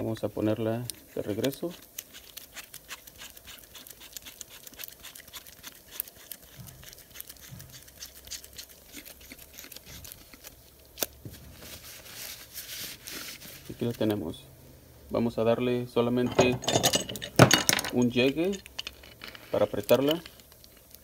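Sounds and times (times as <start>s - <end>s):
paper towel rustling: 11.3s - 14.2s
metal tool clicks and scrapes: 16.2s - 21.0s.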